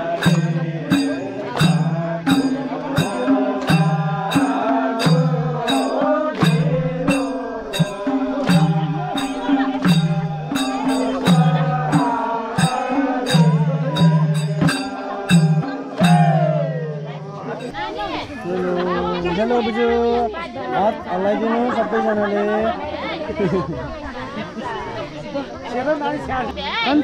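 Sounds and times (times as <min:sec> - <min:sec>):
regular drum beat: 0:00.0 - 0:18.2
voices singing folk song: 0:00.0 - 0:27.0.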